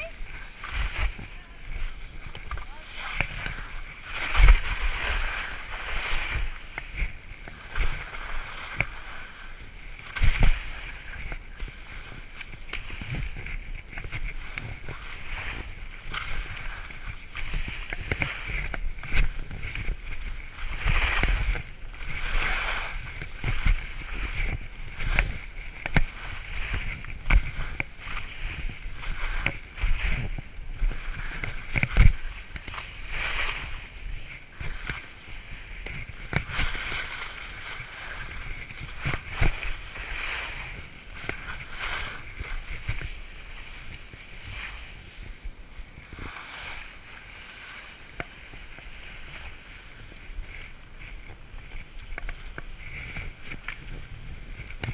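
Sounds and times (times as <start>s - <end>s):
skis hissing through slush: 0.0s - 50.7s
skis knocking over bumps: 10.0s - 44.8s.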